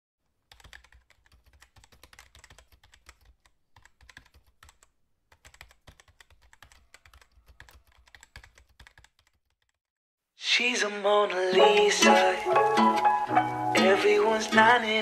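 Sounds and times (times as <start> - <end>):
keyboard typing: 0.4 - 9.8.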